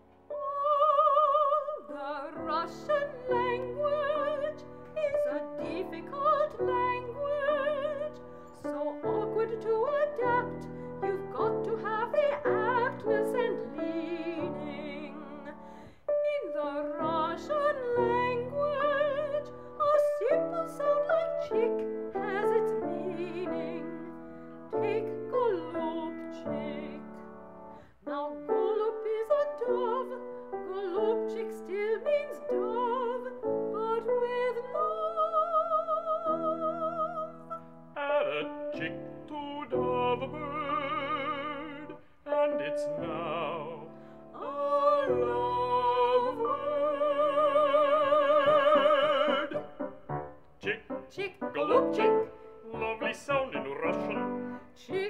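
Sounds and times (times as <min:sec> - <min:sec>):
piano: 0:00.0 - 0:55.0
operatic voice singing: 0:38.0 - 0:49.8, 0:50.6 - 0:55.0.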